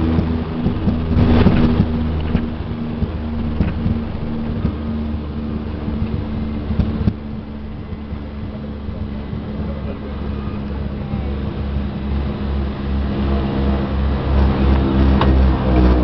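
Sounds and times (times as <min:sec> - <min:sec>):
knocks and rattles: 0:00.0 - 0:04.9
propeller engines droning: 0:00.0 - 0:16.0.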